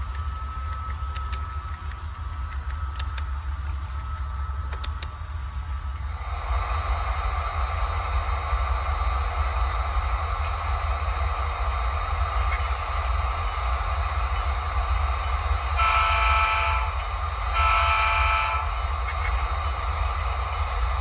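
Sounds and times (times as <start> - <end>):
low hum and running noise: 0.0 - 21.0
model locomotive horn blasts: 15.7 - 18.9.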